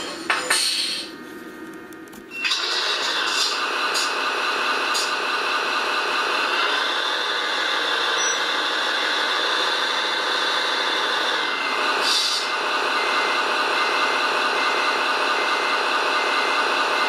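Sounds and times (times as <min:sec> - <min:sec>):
truck engine running: 0:00.0 - 0:17.0
air brake hiss: 0:12.0 - 0:12.5.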